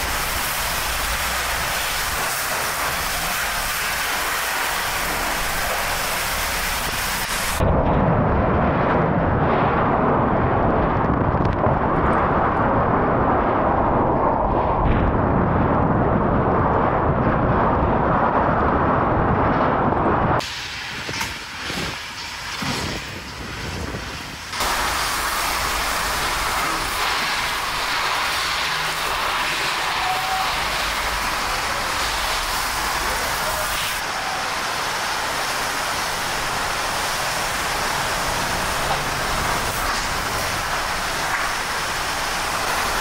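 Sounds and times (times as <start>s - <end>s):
wind buffeting microphone: 4.9s - 29.7s.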